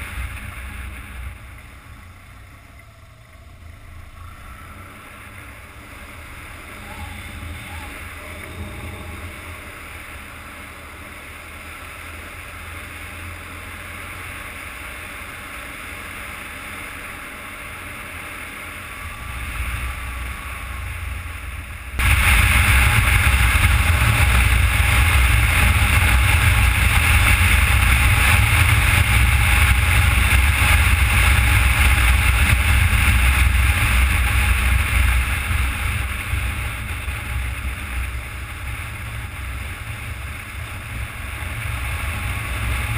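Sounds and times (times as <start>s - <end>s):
motorcycle engine rumble: 0.0s - 42.9s
wind rushing over microphone: 4.3s - 11.2s, 18.8s - 42.9s.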